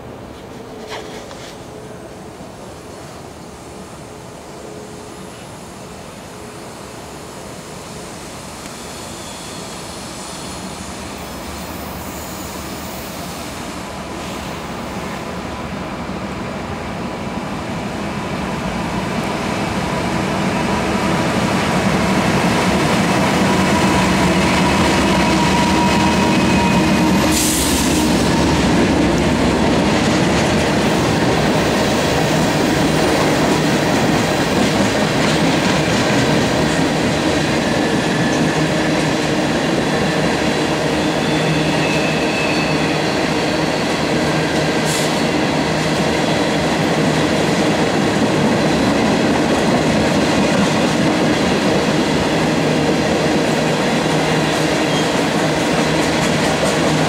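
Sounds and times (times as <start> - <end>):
diesel locomotive engines: 0.0 - 57.0
high wheel squeal: 8.7 - 10.7, 23.8 - 27.9, 40.8 - 43.9.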